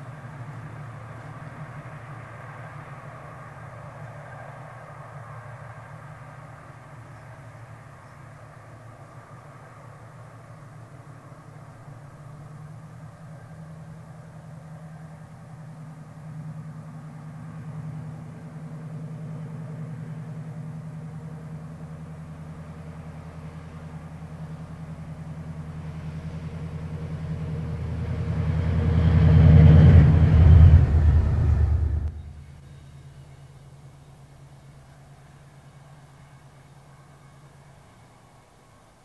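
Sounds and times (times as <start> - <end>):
diesel locomotive engine hum: 0.0 - 39.0.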